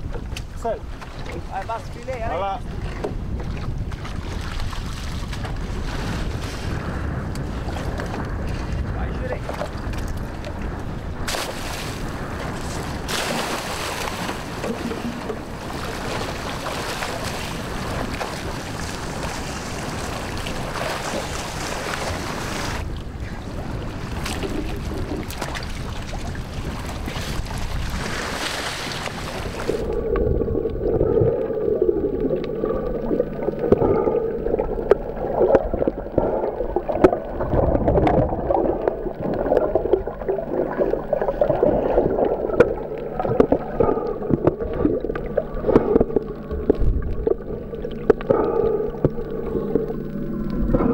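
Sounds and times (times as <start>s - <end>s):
sea water and wind: 0.0s - 50.9s
underwater gurgling: 1.2s - 50.9s
underwater clicks: 29.0s - 50.9s
faint wavering whine: 29.5s - 50.9s.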